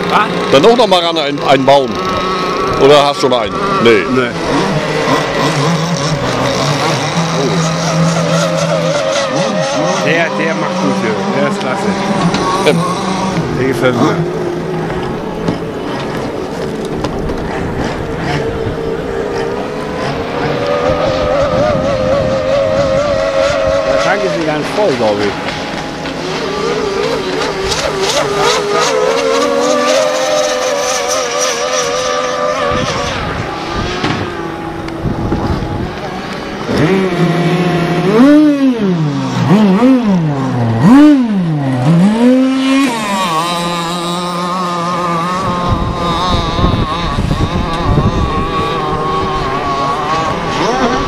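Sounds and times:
model speedboat engine: 0:00.0 - 0:51.0
wind rumble on microphone: 0:13.2 - 0:38.2, 0:43.4 - 0:51.0.

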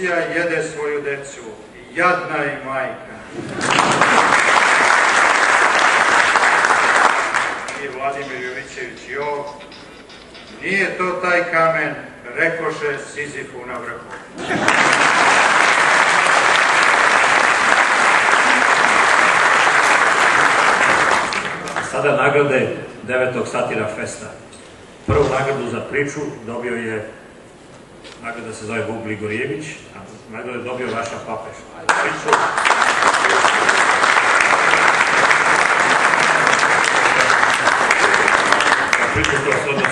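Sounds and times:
audience applauding: 0:03.4 - 0:08.0, 0:14.4 - 0:21.9, 0:31.9 - 0:39.9.

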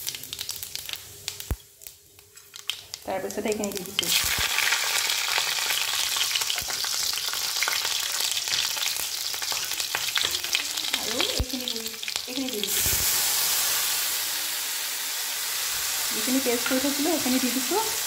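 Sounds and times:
spice paste hissing in oil: 0:00.0 - 0:18.0
spices crackling in hot oil: 0:00.0 - 0:18.0.

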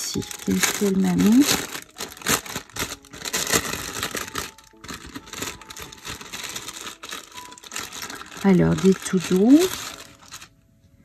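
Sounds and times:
cellophane packaging crinkling: 0:00.0 - 0:10.6.

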